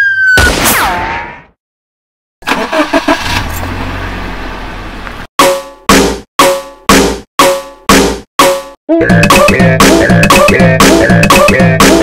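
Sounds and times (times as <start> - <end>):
truck engine rumble: 2.4 - 5.3.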